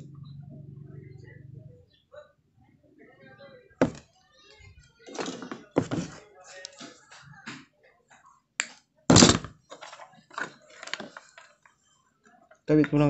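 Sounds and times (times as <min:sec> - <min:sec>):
wires knocking and rustling: 0:03.8 - 0:07.6.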